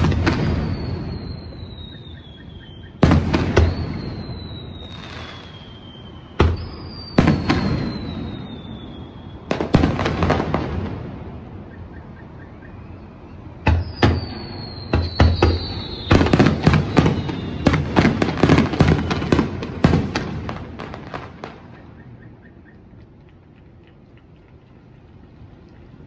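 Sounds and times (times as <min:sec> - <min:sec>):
fireworks crackling: 0:00.0 - 0:11.6, 0:13.7 - 0:22.1
fireworks bangs: 0:00.0 - 0:11.8, 0:13.6 - 0:22.0
high falling whistle: 0:00.3 - 0:09.6, 0:11.6 - 0:17.8.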